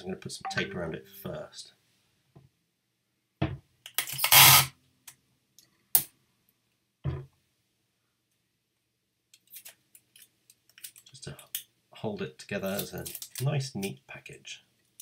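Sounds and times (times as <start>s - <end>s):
sticky tape pulled off roll: 4.0s - 4.7s.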